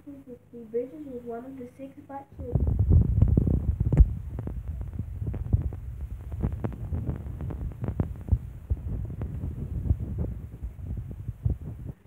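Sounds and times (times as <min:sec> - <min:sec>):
microphone handling noise: 0:02.4 - 0:12.0.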